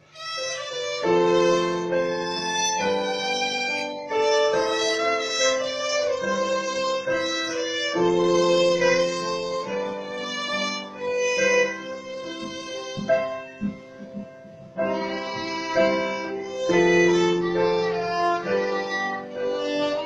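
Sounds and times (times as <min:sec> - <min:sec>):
violin melody: 0:00.0 - 0:20.0
electronic keyboard chords: 0:08.0 - 0:15.2.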